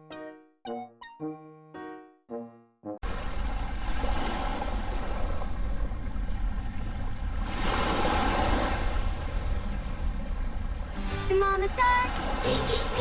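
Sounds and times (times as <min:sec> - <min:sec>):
musical jingle: 0:00.0 - 0:03.0
ocean surf: 0:03.0 - 0:13.0
wave breaking: 0:03.0 - 0:13.0
wind: 0:03.0 - 0:13.0.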